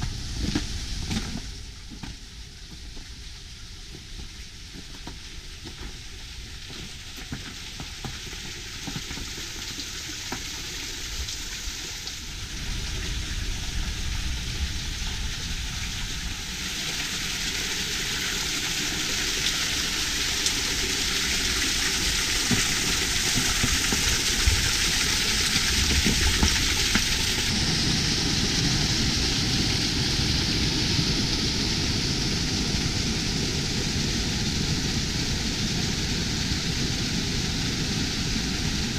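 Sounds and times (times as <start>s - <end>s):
low rumble: 0.0s - 4.8s, 12.0s - 19.8s, 20.4s - 38.9s
water spattering and falling: 0.0s - 38.9s.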